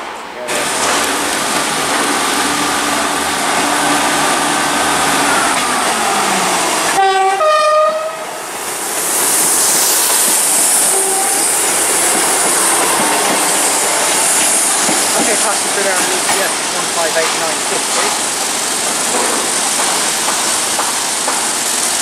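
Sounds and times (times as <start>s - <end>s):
clickety-clack over rail joints: 0.0s - 4.2s, 11.6s - 22.0s
train wheels on rails: 0.0s - 22.0s
two-tone train horn: 6.9s - 8.3s, 10.9s - 11.6s, 12.7s - 14.9s.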